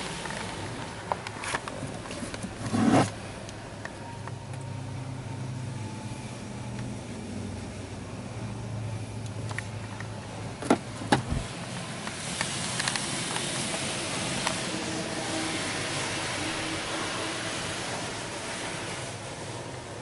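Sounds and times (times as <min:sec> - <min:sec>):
spray hissing on car body: 0:11.4 - 0:20.0.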